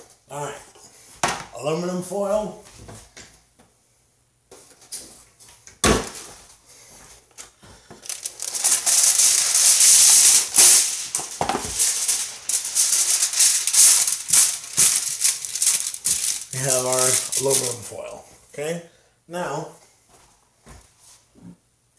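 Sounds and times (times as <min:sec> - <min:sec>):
aluminum foil crinkling: 0:08.0 - 0:18.2.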